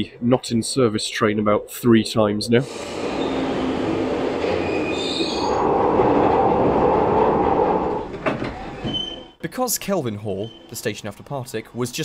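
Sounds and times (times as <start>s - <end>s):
subway train running on rails: 2.6s - 9.4s
high brake squeal: 2.7s - 5.8s, 10.3s - 10.8s.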